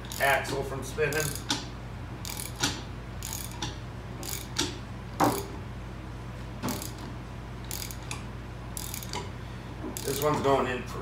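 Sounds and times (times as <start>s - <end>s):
ratchet wrench clicking: 0.0s - 0.4s, 1.1s - 5.5s, 6.7s - 7.0s, 7.7s - 8.2s, 8.8s - 9.3s, 10.0s - 10.4s
steady low hum: 0.0s - 11.0s.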